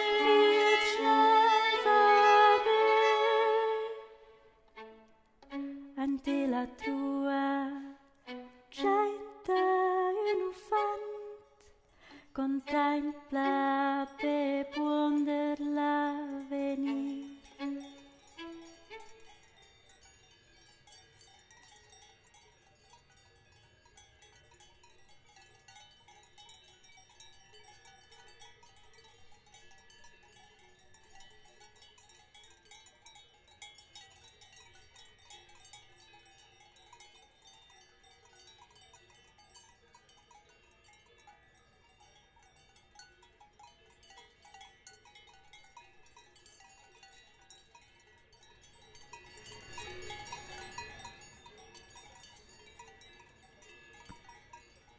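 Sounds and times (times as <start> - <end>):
cowbells clanking: 16.3 - 54.9.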